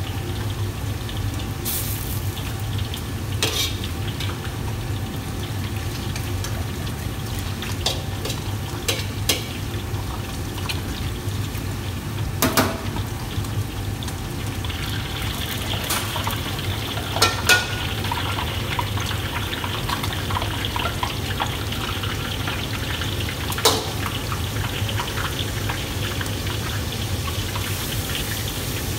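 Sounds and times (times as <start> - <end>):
ladle clanking against wok: 3.4 - 4.4.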